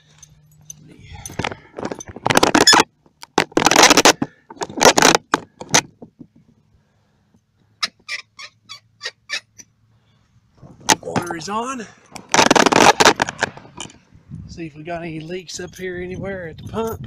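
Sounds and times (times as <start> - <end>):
camera scraping against siding: 1.4 - 6.2, 12.1 - 14.0.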